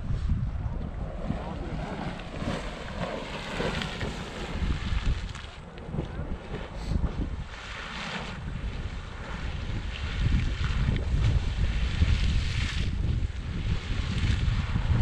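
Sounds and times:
wind buffeting microphone: 0.0 - 15.0
geyser water splashing and hissing: 6.5 - 14.8.

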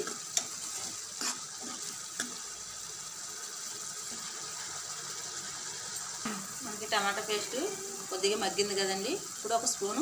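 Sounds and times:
spoon scraping a pan: 0.0 - 2.5
paste sizzling in hot oil: 0.0 - 10.0.

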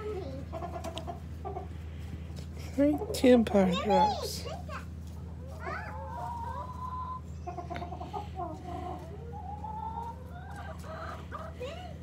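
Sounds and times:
hens clucking: 0.0 - 12.0
long drawn-out hen calls: 5.9 - 11.6.

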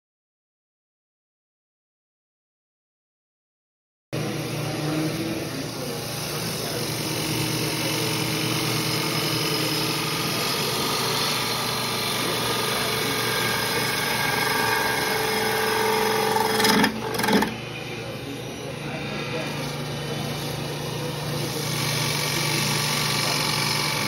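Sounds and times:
lathe motor hum: 4.2 - 24.0
gouge hissing cut on wood: 5.6 - 17.6, 19.6 - 24.0.

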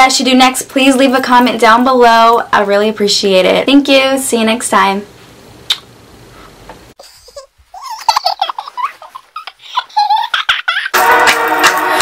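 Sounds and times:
kiss smack: 5.7 - 5.9.

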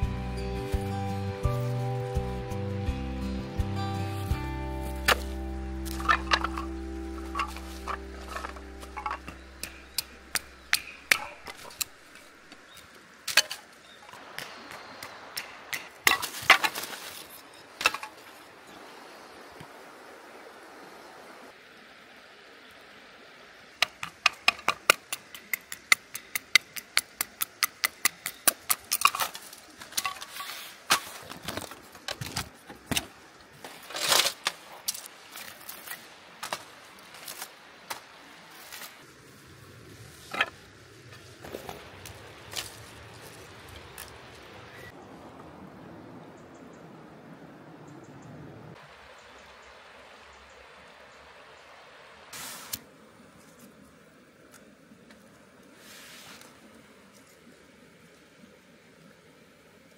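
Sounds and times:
wood splitting knocks and cracks: 15.7 - 17.1.

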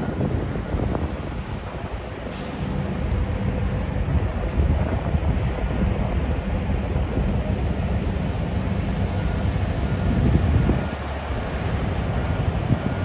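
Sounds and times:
diesel engines idling: 0.0 - 13.0
air brake hiss: 2.3 - 2.9.

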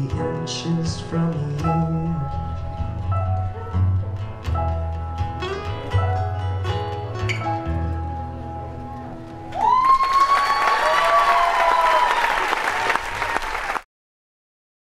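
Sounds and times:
acoustic guitars and piano ringing: 0.0 - 9.5
high whoops: 9.5 - 13.8
audience applause: 9.5 - 13.9.

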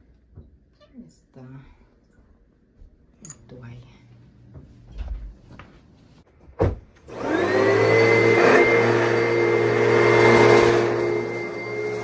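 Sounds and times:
vacuum cleaner running on carpet: 7.1 - 12.0.

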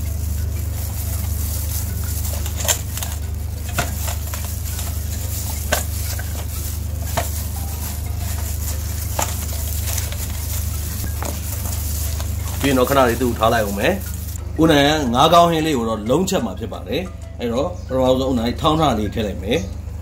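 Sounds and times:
squelching and rubbing of wet paste: 0.0 - 14.4
steady low hum: 0.0 - 18.3.

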